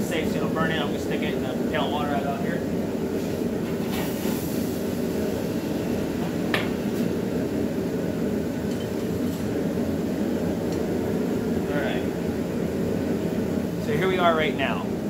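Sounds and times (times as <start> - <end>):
hot steel hissing in water: 2.6 - 7.0.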